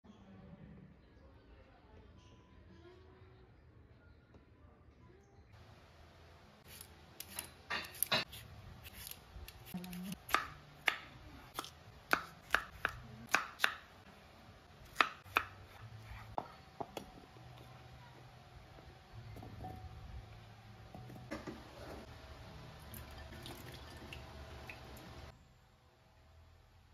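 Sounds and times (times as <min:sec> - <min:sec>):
knife chopping on wooden board: 0:07.2 - 0:13.9, 0:14.9 - 0:17.1.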